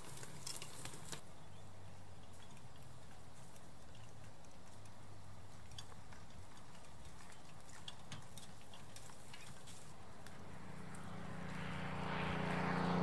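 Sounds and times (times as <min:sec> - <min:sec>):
low steady hum: 0:09.2 - 0:13.0.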